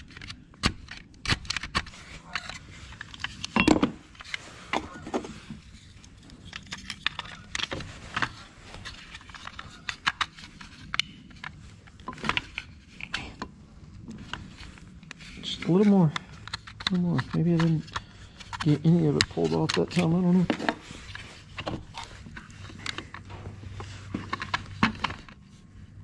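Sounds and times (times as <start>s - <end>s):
plastic clicks scrapes and knocks: 0.0s - 25.6s.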